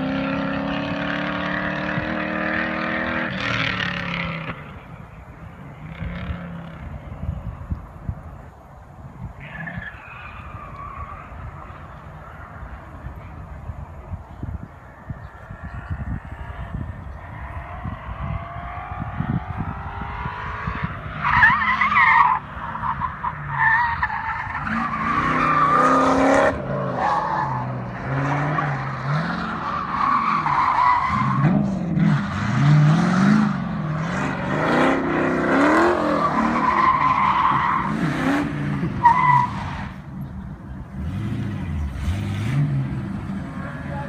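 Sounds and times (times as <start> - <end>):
car engine revving: 23.5 - 44.0.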